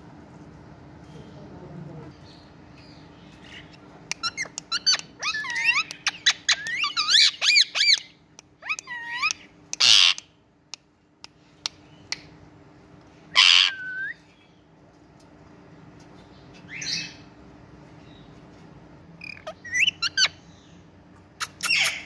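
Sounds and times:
parakeets calling: 0:02.9 - 0:10.2, 0:13.4 - 0:14.2, 0:19.2 - 0:20.8, 0:21.4 - 0:22.0
parakeet harsh screeches: 0:21.4 - 0:22.0.

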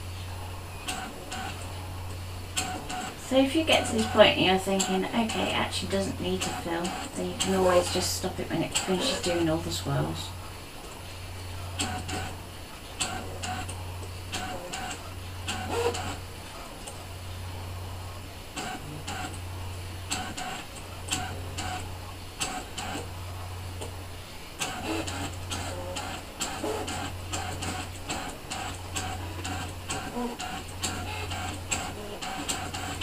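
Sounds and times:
cutting machine motor hum: 0:02.5 - 0:10.5.

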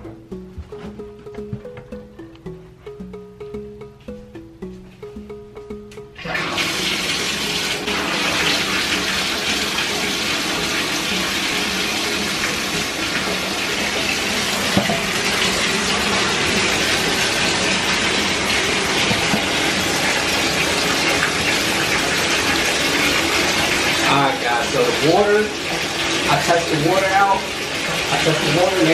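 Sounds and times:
water pouring into bathtub: 0:06.2 - 0:28.9.

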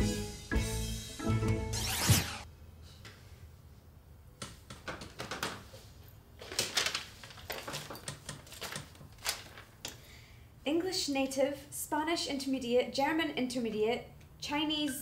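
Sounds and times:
paper rustling: 0:05.3 - 0:10.0.

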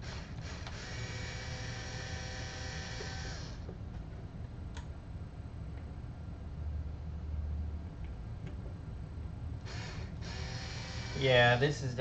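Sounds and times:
electric screwdriver whine: 0:00.0 - 0:03.7, 0:09.6 - 0:11.6.

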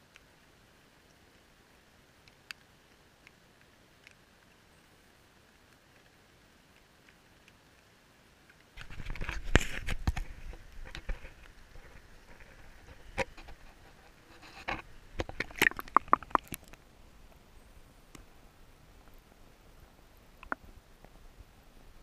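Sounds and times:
river water splashing: 0:15.0 - 0:16.9
water dripping: 0:15.2 - 0:16.8.

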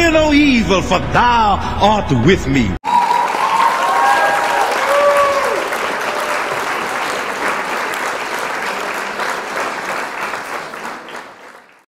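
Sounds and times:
audience applauding: 0:02.8 - 0:11.9.

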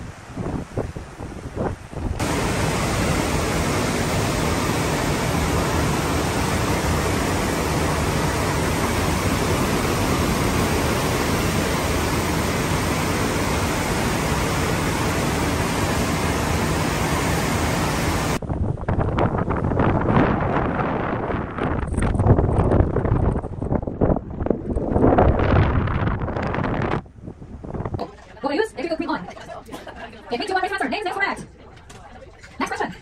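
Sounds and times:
churning ship wake water rushing: 0:00.0 - 0:18.4.

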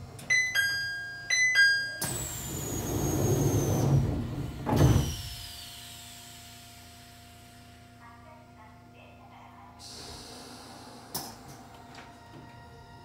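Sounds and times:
train doors sliding with whine: 0:02.0 - 0:05.6, 0:10.0 - 0:13.0
doors shutting thump: 0:03.9 - 0:05.3.

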